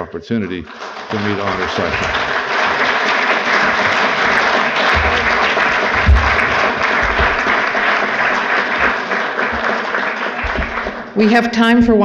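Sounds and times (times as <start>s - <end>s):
audience applauding: 0.0s - 12.0s
low thump: 5.9s - 7.4s.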